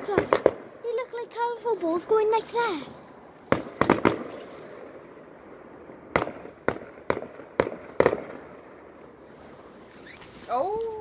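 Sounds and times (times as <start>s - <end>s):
distant fireworks bangs: 0.0s - 1.3s, 3.1s - 10.1s.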